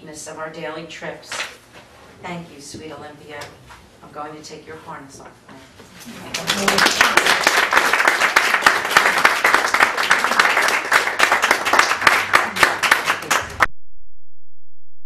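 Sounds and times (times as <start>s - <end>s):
audience applauding: 6.2s - 13.7s.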